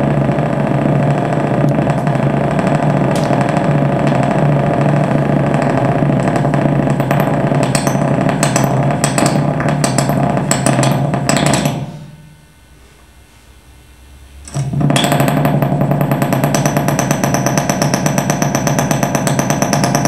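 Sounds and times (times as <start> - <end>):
crackling clicks: 0.0 - 11.7
distorted noise drone: 0.0 - 20.0
low hum: 0.0 - 20.0.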